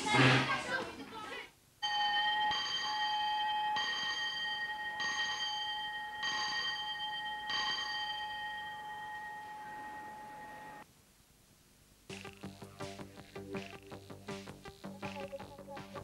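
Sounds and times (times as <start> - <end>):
school bell ringing: 1.8 - 10.8.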